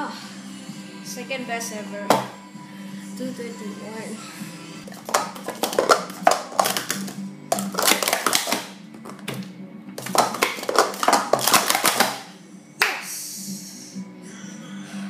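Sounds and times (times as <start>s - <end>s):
plastic cups clattering: 4.9s - 12.3s
hands slapping timer pads: 4.9s - 13.0s.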